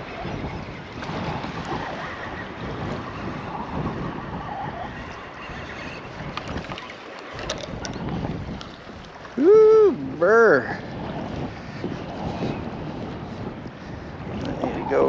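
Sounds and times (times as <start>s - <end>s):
wind buffeting microphone: 0.0s - 15.0s
small waves lapping: 5.4s - 10.2s.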